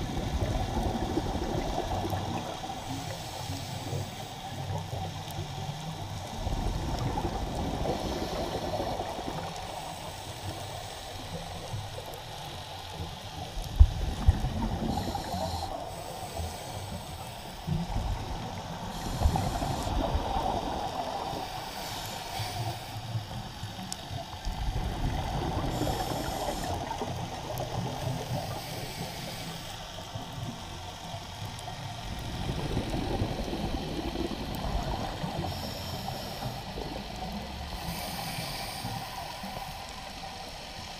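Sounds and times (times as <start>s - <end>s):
diver's exhaled bubbles gurgling: 0.0s - 3.1s, 6.3s - 11.9s, 13.7s - 21.8s, 24.4s - 29.1s, 32.1s - 37.9s
underwater water noise: 0.0s - 40.9s.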